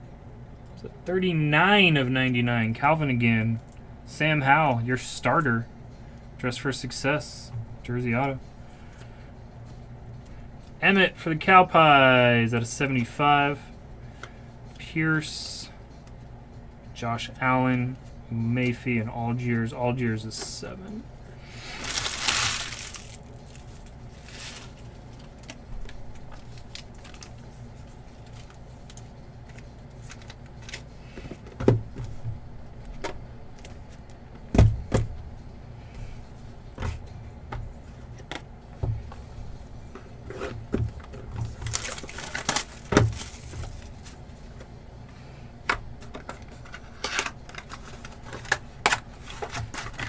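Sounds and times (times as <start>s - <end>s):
card packs and wrappers rustling: 21.6s - 31.4s, 41.0s - 44.3s, 46.0s - 50.0s.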